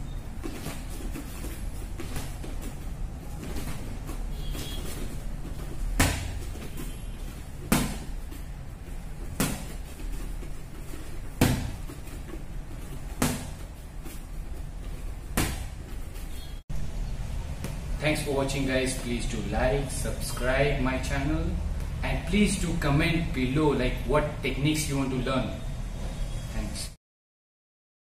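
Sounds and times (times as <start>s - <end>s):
boxing gloves slapping: 0.3s - 16.3s.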